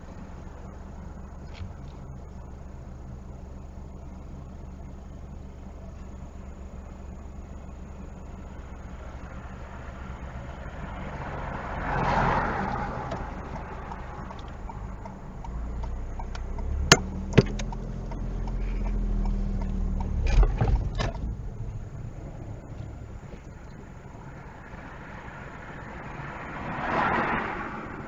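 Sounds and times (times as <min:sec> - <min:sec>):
car road and engine rumble: 0:00.0 - 0:28.0
vehicle passing: 0:09.0 - 0:28.0
sharp knocks: 0:16.2 - 0:17.8.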